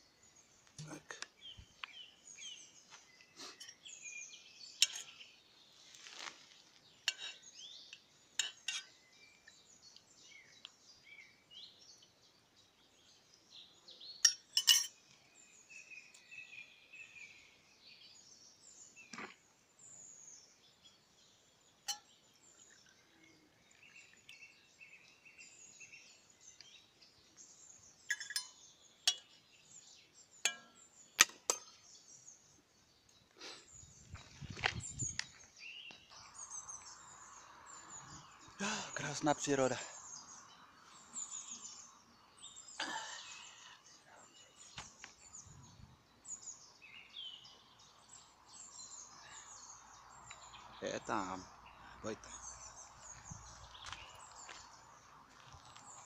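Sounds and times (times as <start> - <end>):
birds singing faintly: 0.0 - 56.0
camping pots and lids clinking: 3.5 - 5.4, 6.0 - 9.1, 14.2 - 15.1, 21.8 - 22.8, 28.0 - 32.0.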